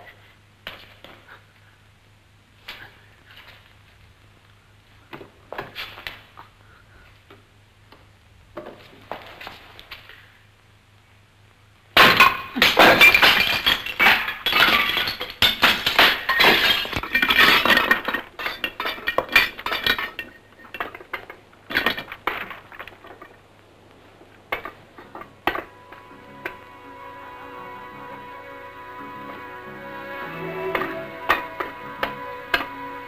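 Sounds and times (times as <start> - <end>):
roof tiles breaking and clattering: 12.0 - 23.6, 24.5 - 25.7.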